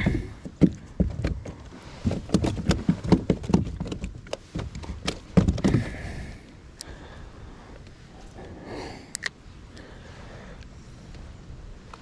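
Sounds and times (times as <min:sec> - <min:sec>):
fishing gear knocking on plastic kayak: 0:00.4 - 0:05.9.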